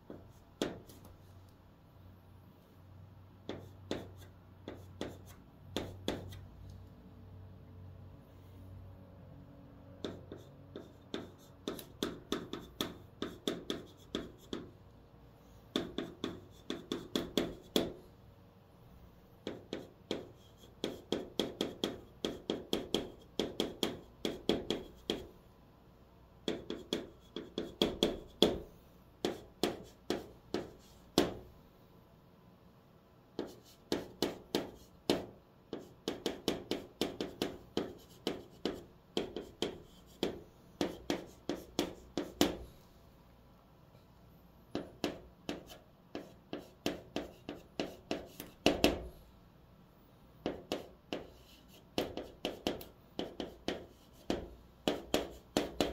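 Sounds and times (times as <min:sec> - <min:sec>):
chalk tapping and scraping on chalkboard: 0:00.0 - 0:01.4, 0:03.4 - 0:06.5, 0:10.0 - 0:14.8, 0:15.7 - 0:18.0, 0:19.4 - 0:25.4, 0:26.4 - 0:31.5, 0:33.3 - 0:42.8, 0:44.7 - 0:49.2, 0:50.4 - 0:55.9.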